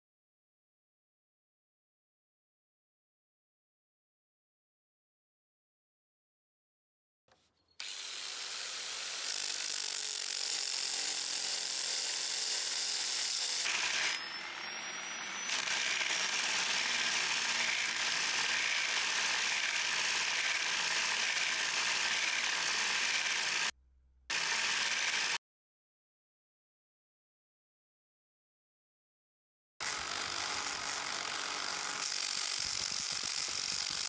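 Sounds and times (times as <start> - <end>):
wire bristles buzzing on wood: 7.8 - 23.7, 24.3 - 25.4, 29.8 - 34.0.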